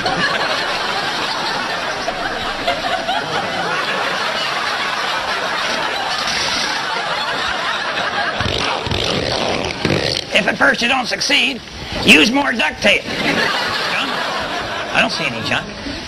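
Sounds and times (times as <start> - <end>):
audience laughing: 0.0 - 9.2, 13.0 - 15.8.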